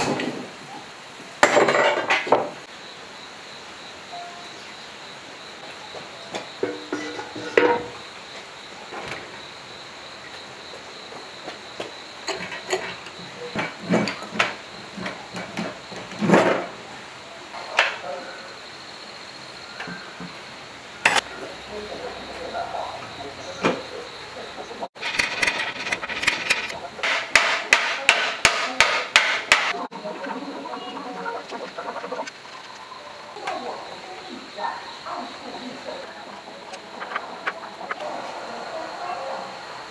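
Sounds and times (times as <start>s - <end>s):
metal knocks and clanks: 6.6s - 8.0s, 25.0s - 29.7s
hammer striking metal: 27.0s - 29.8s.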